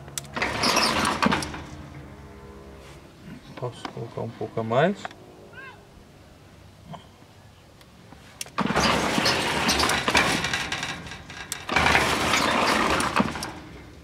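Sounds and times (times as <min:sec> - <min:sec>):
sliding gate motor running: 0:00.2 - 0:02.6, 0:08.6 - 0:14.0.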